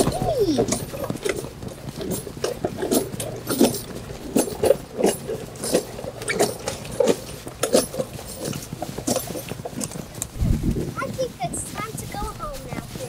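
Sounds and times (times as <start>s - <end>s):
toy horse hooves clunking on concrete: 0.0s - 10.4s.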